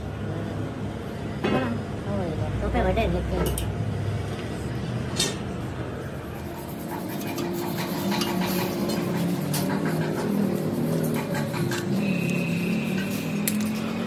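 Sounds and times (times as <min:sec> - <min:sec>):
hand tool clicking and scraping metal: 0:07.0 - 0:14.0.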